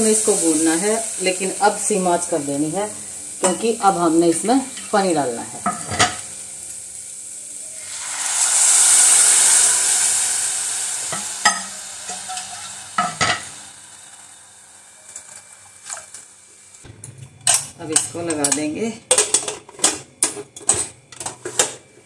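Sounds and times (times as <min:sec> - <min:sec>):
water hissing in hot pot: 0:00.0 - 0:16.8.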